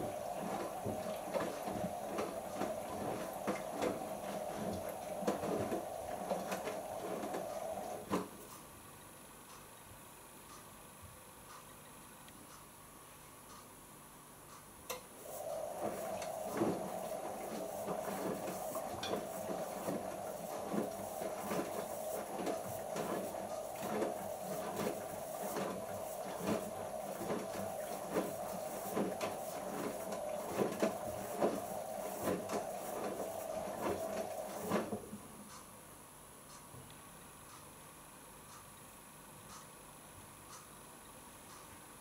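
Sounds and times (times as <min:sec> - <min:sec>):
washing machine drum tumbling: 0:00.0 - 0:08.5, 0:15.2 - 0:35.4.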